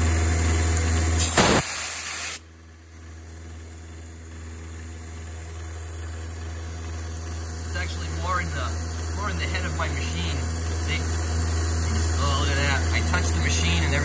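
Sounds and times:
hissing coolant mist spray: 0:00.2 - 0:02.5, 0:04.4 - 0:14.0
milling machine hum: 0:02.7 - 0:14.0.

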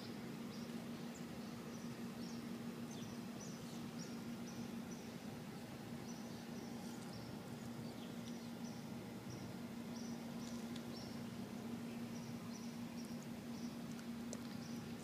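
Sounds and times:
steady low hum: 0:00.0 - 0:15.0.

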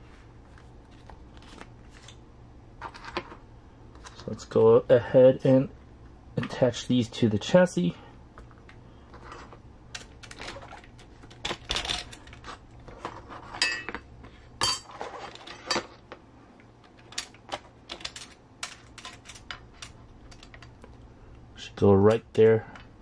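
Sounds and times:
hard parts clicking and clattering: 0:16.8 - 0:21.0.

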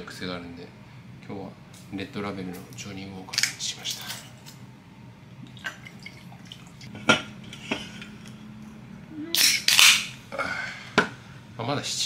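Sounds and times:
liquid trickling: 0:05.4 - 0:06.9.

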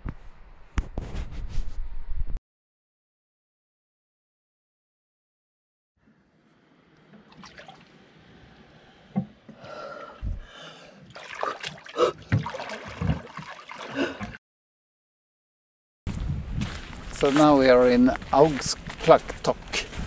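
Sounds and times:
sharp gasping breaths: 0:08.8 - 0:12.2.

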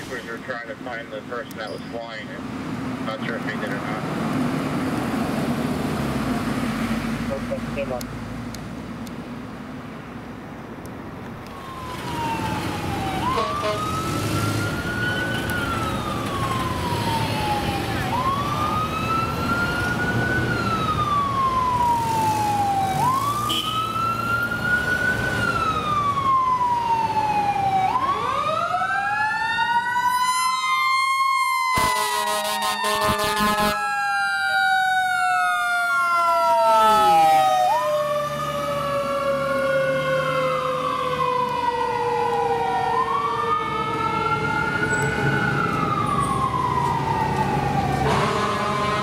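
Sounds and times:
traffic noise: 0:00.0 - 0:49.0
wailing siren: 0:11.4 - 0:49.0
air horn blast: 0:13.3 - 0:13.8, 0:31.8 - 0:33.8, 0:48.0 - 0:49.0
second siren winding up: 0:27.5 - 0:38.4.

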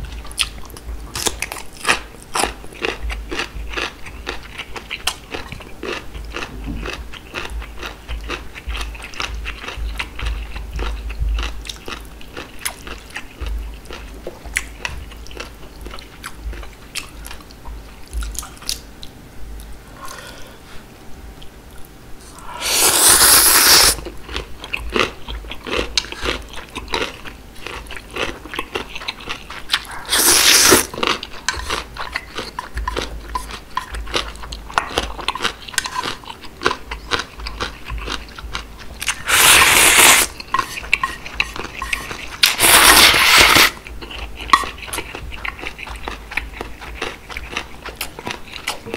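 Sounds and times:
crunchy chewing: 0:00.0 - 0:20.2, 0:21.4 - 0:48.9
slurping noodles: 0:22.5 - 0:24.0, 0:29.8 - 0:30.9, 0:39.1 - 0:40.8, 0:41.4 - 0:43.8.

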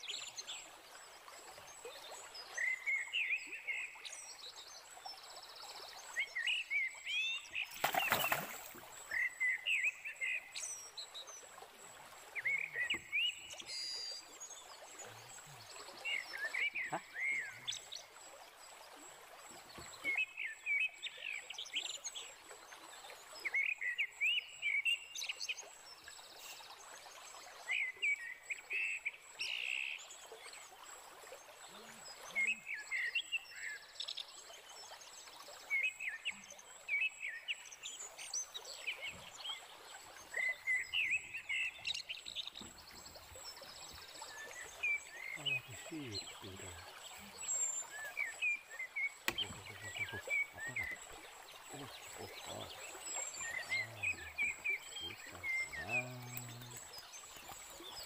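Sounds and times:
wildlife chirping: 0:40.3 - 0:58.0.

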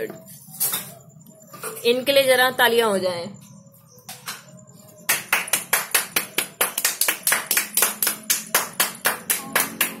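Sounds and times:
hands clapping in applause: 0:05.1 - 0:10.0.

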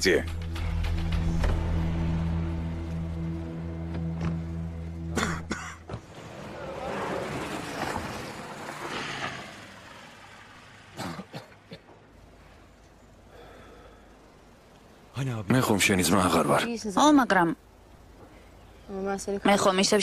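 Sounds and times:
background music: 0:00.0 - 0:06.1
outdoor ambience: 0:00.0 - 0:20.0
person coughing: 0:05.1 - 0:05.8, 0:11.0 - 0:11.9
car driving over dirt and rubble: 0:05.7 - 0:10.6.

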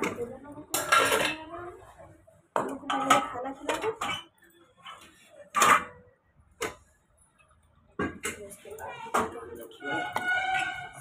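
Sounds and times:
pots and ladle clattering: 0:00.0 - 0:01.5, 0:05.5 - 0:06.8.

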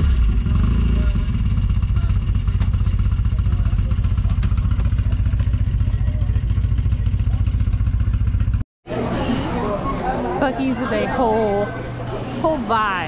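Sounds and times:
truck engine idling: 0:00.0 - 0:08.6.

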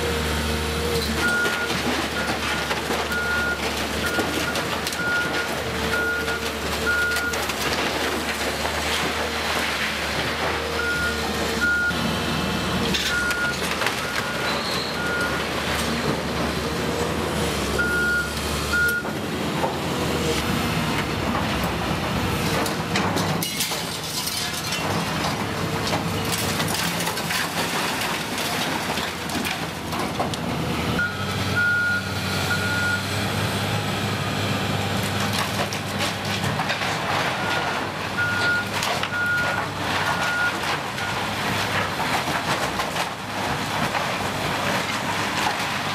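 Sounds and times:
excavator diesel engine under load: 0:00.0 - 0:45.9
debris crunching and clattering: 0:01.0 - 0:11.9, 0:12.8 - 0:31.0, 0:34.8 - 0:45.9
reversing alarm beeps: 0:10.8 - 0:12.0, 0:13.1 - 0:15.4, 0:17.8 - 0:19.1, 0:31.0 - 0:33.1, 0:38.2 - 0:39.6.

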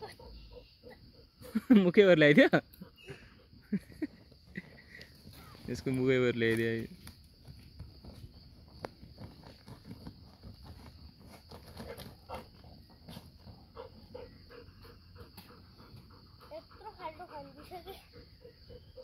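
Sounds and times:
gravel clicking: 0:03.9 - 0:14.0
dog paws scratching dirt: 0:05.1 - 0:14.1.

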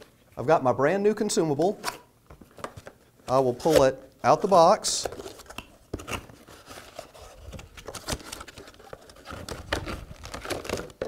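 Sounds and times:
packing rustling: 0:05.0 - 0:11.0
cardboard box being opened: 0:05.1 - 0:11.0.

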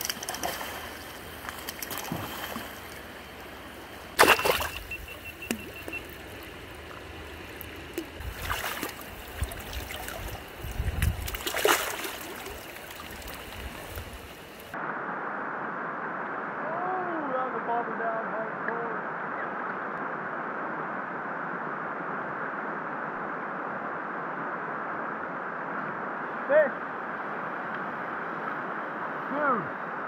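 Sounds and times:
river water rushing over rocks: 0:00.0 - 0:14.8
sharp splashes: 0:00.0 - 0:14.8
muffled hiss: 0:00.0 - 0:30.0.

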